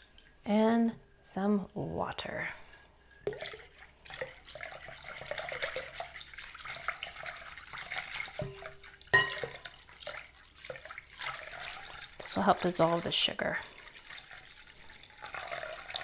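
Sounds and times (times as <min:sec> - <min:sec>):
water pouring into bowl: 0:02.7 - 0:16.0
whisk stirring: 0:03.4 - 0:16.0
glass clink: 0:08.4 - 0:09.6.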